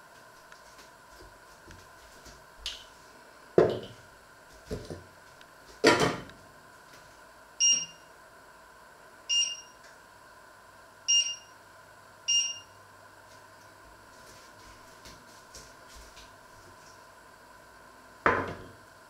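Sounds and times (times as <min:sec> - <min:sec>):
touch control beeps: 0:07.6 - 0:08.0, 0:09.3 - 0:09.8, 0:11.1 - 0:11.5, 0:12.3 - 0:12.7.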